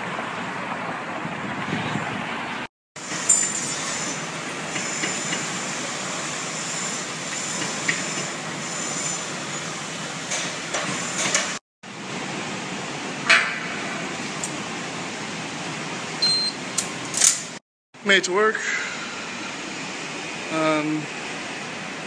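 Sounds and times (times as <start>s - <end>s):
wind and road noise: 0.0s - 6.5s
sharp metallic clank: 3.2s - 4.2s.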